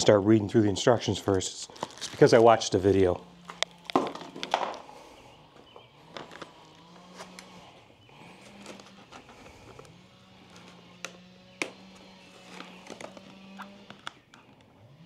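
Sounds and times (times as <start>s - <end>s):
plastic packaging rustling: 1.0s - 4.9s, 6.0s - 7.6s, 11.8s - 14.2s.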